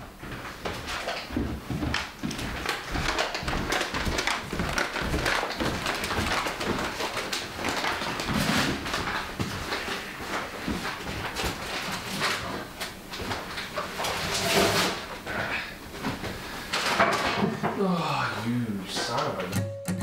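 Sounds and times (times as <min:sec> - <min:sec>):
footsteps: 0:00.0 - 0:14.3
small knocks and clatters: 0:00.3 - 0:15.2, 0:16.0 - 0:17.8.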